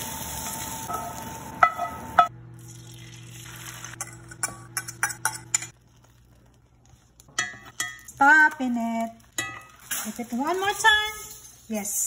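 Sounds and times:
frying sizzle: 0:00.0 - 0:04.0
utensils clinking on skillet and plate: 0:03.8 - 0:05.8, 0:07.3 - 0:12.0.

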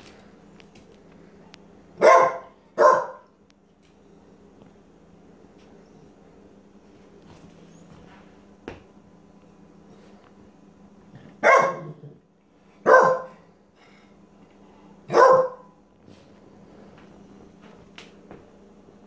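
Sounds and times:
dog barking: 0:02.0 - 0:03.3, 0:11.4 - 0:12.0, 0:12.8 - 0:13.4, 0:15.1 - 0:15.8.

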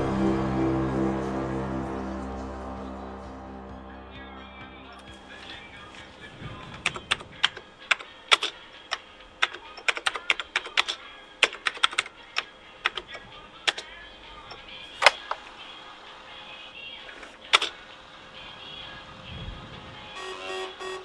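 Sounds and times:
computer keyboard typing: 0:06.8 - 0:13.9.

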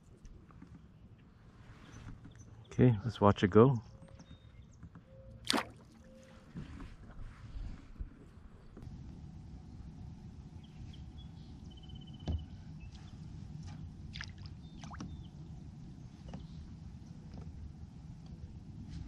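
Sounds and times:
wind and water rumble: 0:05.4 - 0:19.0.

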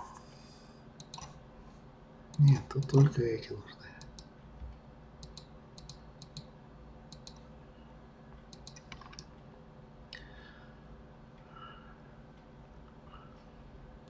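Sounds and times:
faint steady hum: 0:00.0 - 0:14.0
computer mouse clicks: 0:01.0 - 0:01.4, 0:02.3 - 0:03.1, 0:04.0 - 0:04.3, 0:05.2 - 0:06.5, 0:07.1 - 0:07.5, 0:08.5 - 0:09.3.

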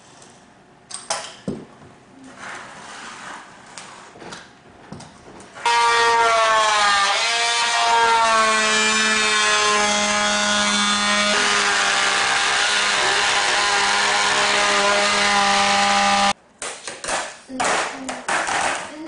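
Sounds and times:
oscillating multi-tool cutting flooring: 0:07.0 - 0:16.4.

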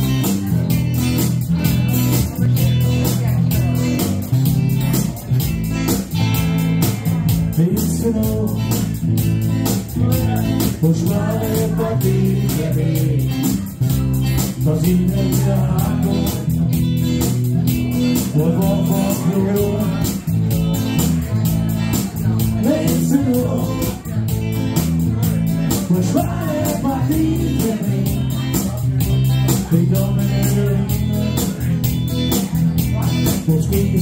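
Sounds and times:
bass guitar: 0:00.0 - 0:34.0
electric guitar: 0:00.0 - 0:34.0
strummed acoustic guitar: 0:00.0 - 0:34.0
person singing into a microphone: 0:07.5 - 0:09.0, 0:10.0 - 0:13.7, 0:14.4 - 0:16.7, 0:18.1 - 0:20.3, 0:22.4 - 0:24.2, 0:25.7 - 0:31.6.

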